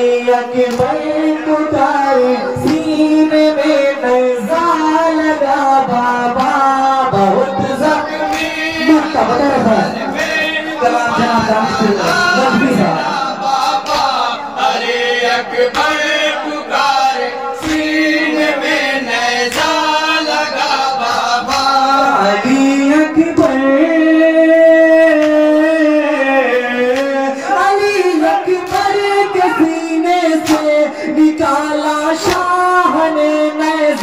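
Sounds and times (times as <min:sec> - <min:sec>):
men chanting into microphones: 0:00.0 - 0:34.0
hands slapping chests: 0:13.6 - 0:14.4, 0:17.6 - 0:18.2, 0:19.4 - 0:20.0, 0:21.4 - 0:21.9, 0:28.6 - 0:29.0, 0:30.4 - 0:30.8, 0:32.2 - 0:32.5.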